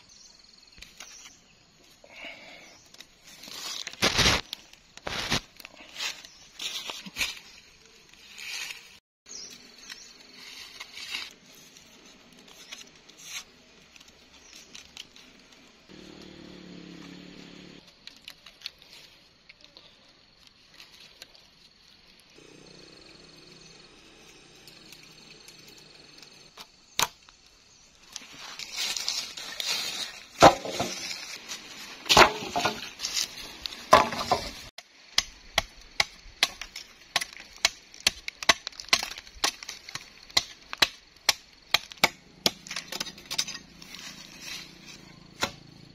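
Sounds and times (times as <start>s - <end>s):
blade chopping wooden pole: 30.4s - 31.0s, 33.9s - 34.5s, 35.1s - 43.6s, 45.4s - 45.6s.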